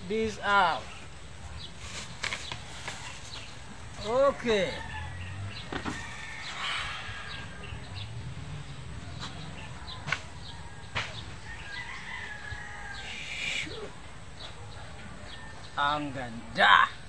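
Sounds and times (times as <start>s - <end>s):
rooster crowing: 4.5s - 8.1s, 9.4s - 14.0s.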